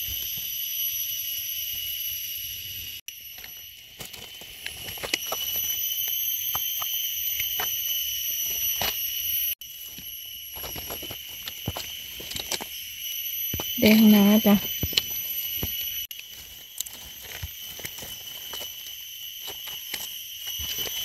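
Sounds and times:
night insects droning: 0.0 - 21.0
dry leaves rustling: 13.6 - 21.0.

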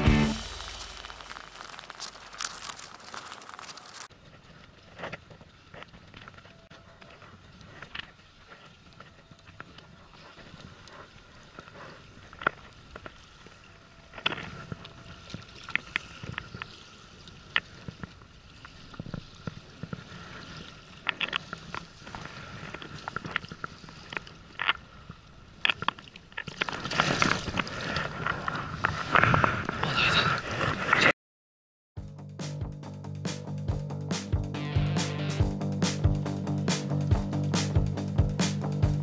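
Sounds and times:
water splashing and sloshing: 0.0 - 31.0.

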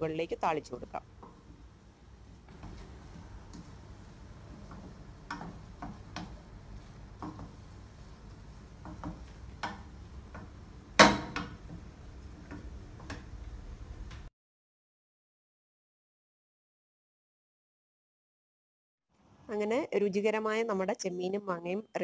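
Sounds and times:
wooden spatula knocking pan: 4.6 - 6.4, 7.1 - 7.6, 8.8 - 11.9.

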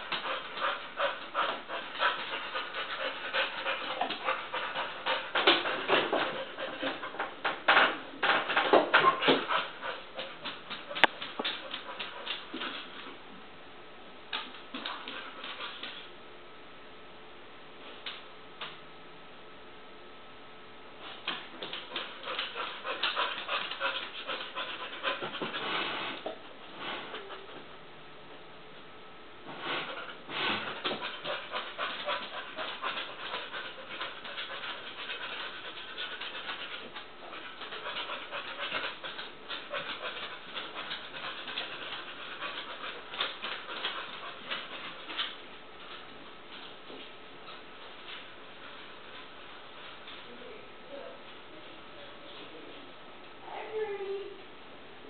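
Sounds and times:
puppy panting: 0.0 - 13.1, 21.3 - 25.7, 29.8 - 46.0.

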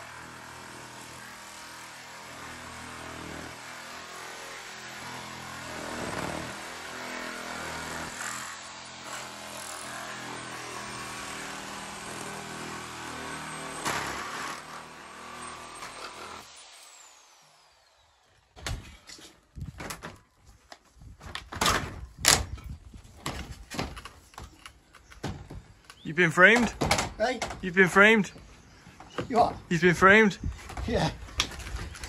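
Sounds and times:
power saw cutting plastic: 0.0 - 19.1.

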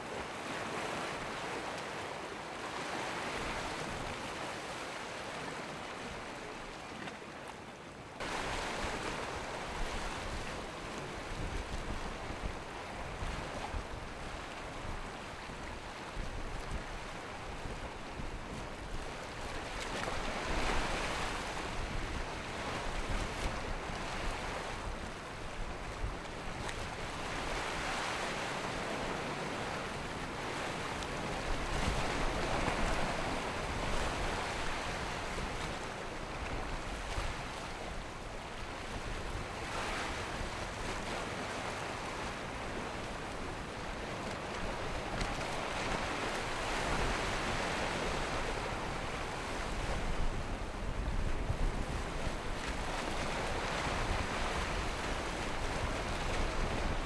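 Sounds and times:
water rushing and splashing: 8.2 - 50.3
wind rumbling on microphone: 8.2 - 57.0.

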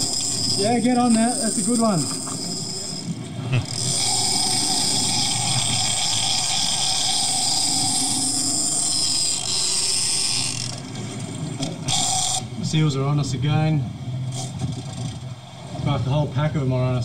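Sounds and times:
fishing reel drag whine: 0.0 - 12.7
low rumble of boat and water: 0.0 - 17.0.

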